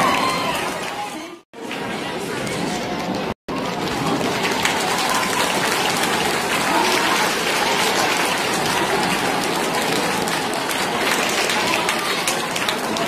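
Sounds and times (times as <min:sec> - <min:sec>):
crowd chatter: 0:00.0 - 0:13.0
audience applauding: 0:03.5 - 0:13.0.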